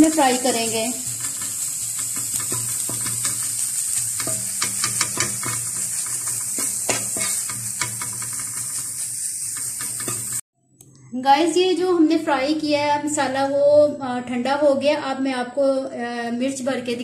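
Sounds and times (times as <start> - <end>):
food sizzling on a griddle: 0.0 - 10.4
wooden spatula scraping griddle: 1.1 - 10.4.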